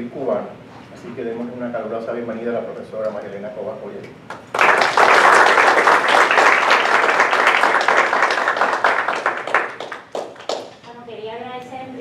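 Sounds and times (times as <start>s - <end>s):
audience applauding: 4.3s - 10.8s.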